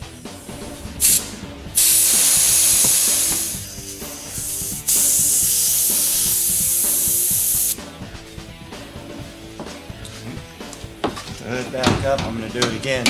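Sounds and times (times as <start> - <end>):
compressed air hissing: 0.0 - 7.9.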